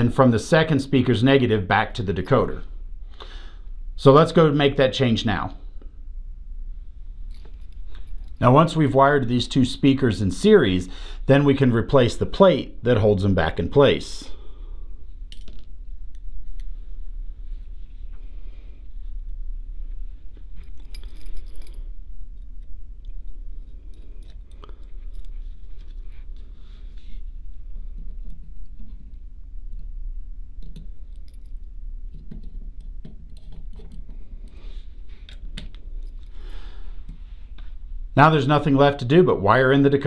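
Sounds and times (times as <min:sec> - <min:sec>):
steady low hum: 0:00.0 - 0:40.0
small metal parts clicking: 0:20.6 - 0:26.0, 0:30.6 - 0:34.6.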